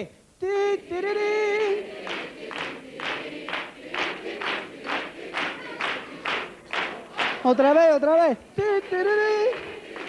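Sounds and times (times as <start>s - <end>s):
audience clapping in unison: 1.7s - 8.1s, 8.7s - 10.0s.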